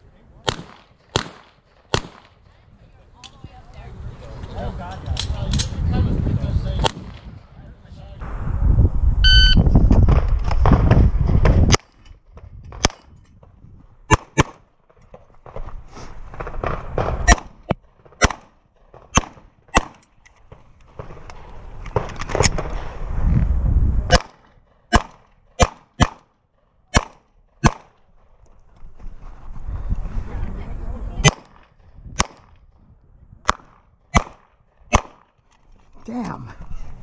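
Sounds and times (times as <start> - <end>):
pistol shots: 0.4 - 2.5, 14.1 - 14.6, 16.4 - 20.0, 24.1 - 26.3, 26.9 - 28.0, 31.2 - 32.6, 33.4 - 35.3
loud low rumble: 8.2 - 11.2.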